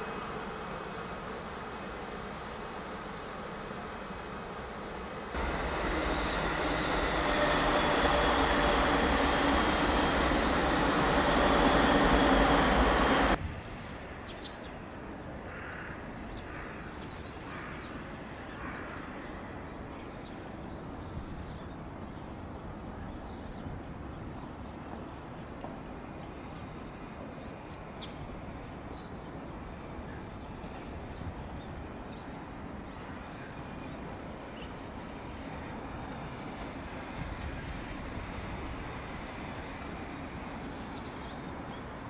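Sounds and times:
freight train wheels on rails: 0:05.4 - 0:13.4, 0:23.8 - 0:42.0.

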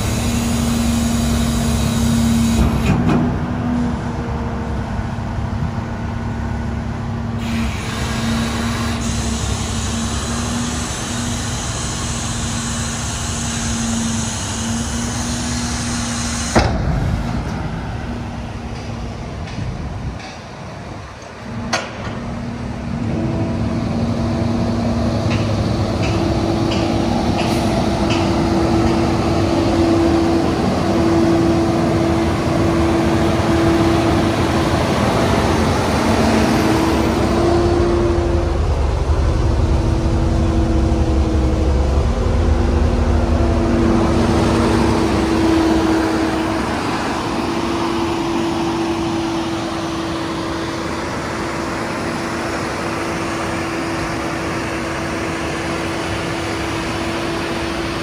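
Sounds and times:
hiss: 0:00.0 - 0:02.9, 0:07.4 - 0:16.8
diesel engine idling: 0:20.8 - 0:58.0.

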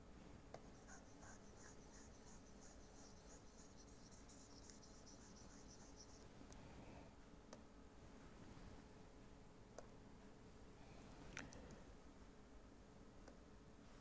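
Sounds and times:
stylus scratching on pen tablet: 0:00.6 - 0:06.2.

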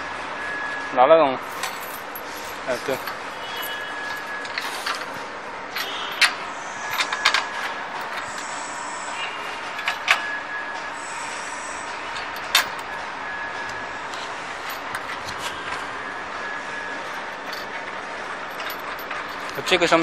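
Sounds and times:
metal squeaking on metal: 0:02.3 - 0:05.2
metal clanks and knocks: 0:05.8 - 0:08.4, 0:12.2 - 0:13.0, 0:17.1 - 0:19.8.

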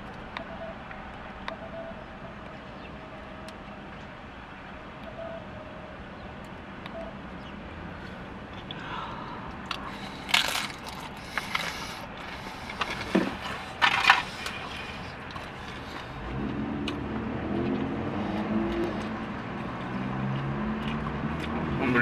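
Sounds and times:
low vehicle hum: 0:00.0 - 0:22.0
person chewing food: 0:08.0 - 0:21.6
sharp crunches: 0:09.7 - 0:16.2.

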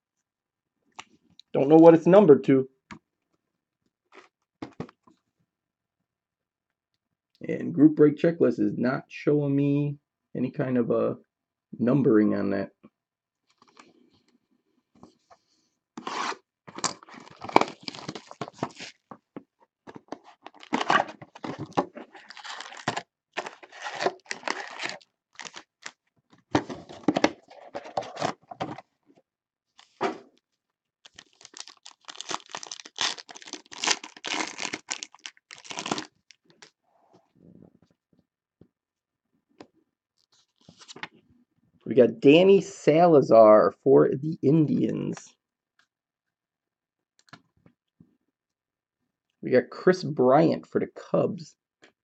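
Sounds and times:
packaging tearing and crinkling: 0:16.0 - 0:19.0, 0:20.4 - 0:26.0, 0:31.0 - 0:36.7.

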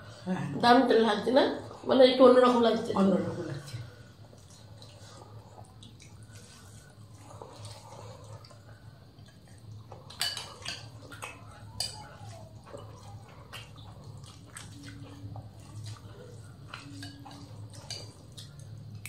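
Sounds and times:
low steady hum: 0:00.0 - 0:19.0
chewing noises: 0:03.6 - 0:19.0
metal spoon clinking glass bowl: 0:10.1 - 0:11.0, 0:11.7 - 0:12.1.

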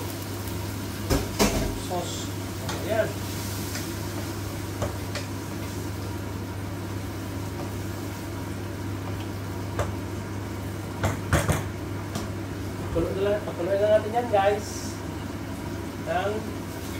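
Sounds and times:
spatula stirring onions in a pan: 0:00.0 - 0:11.8
low electrical hum: 0:00.0 - 0:16.9.

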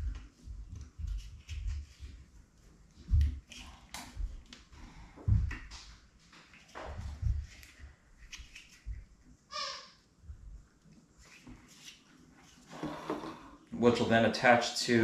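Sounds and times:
plastic squeak: 0:09.5 - 0:10.0.

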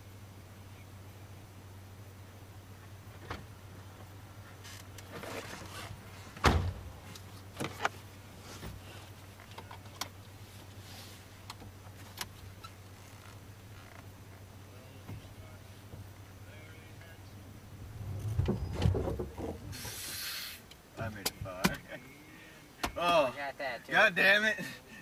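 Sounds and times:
steady low hum: 0:00.0 - 0:25.0
car door slamming: 0:06.4 - 0:07.0, 0:18.0 - 0:20.1.

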